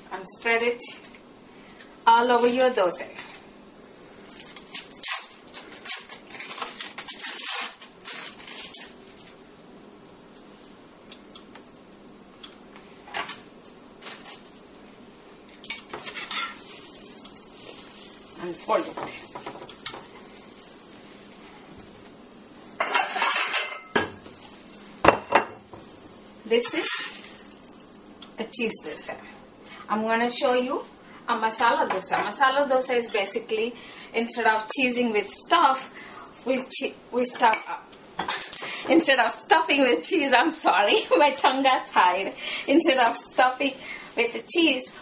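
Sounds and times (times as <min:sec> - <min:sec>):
plastic wrappers crinkling: 0:04.2 - 0:09.4, 0:14.0 - 0:14.7, 0:15.8 - 0:21.0, 0:25.9 - 0:28.0
spatula scraping frying pan: 0:15.9 - 0:20.4, 0:26.6 - 0:27.3.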